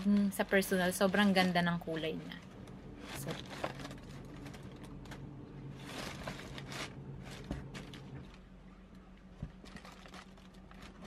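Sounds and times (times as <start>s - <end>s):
low steady hum: 0.0s - 11.0s
sneaker rustling in shoebox: 5.8s - 8.4s.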